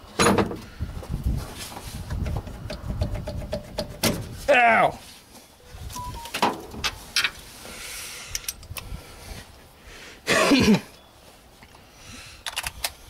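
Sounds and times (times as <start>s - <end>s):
person coughing: 10.3s - 10.9s.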